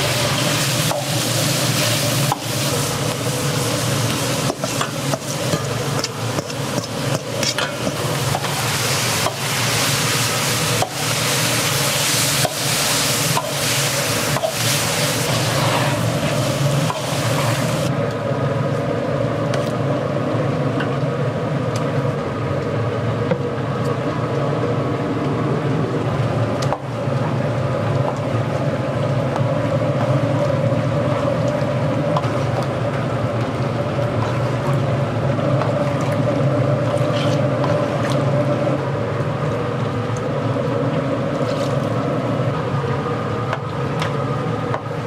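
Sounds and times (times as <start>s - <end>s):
meat sizzling in a wok: 0.0s - 5.8s, 7.8s - 17.9s
low kitchen roar: 0.0s - 45.0s.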